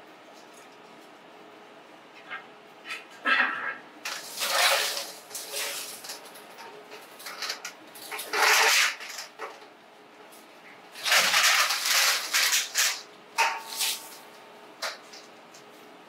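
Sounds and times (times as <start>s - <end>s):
plastic pipe scraping and rustling: 4.1s - 9.6s, 11.0s - 14.2s.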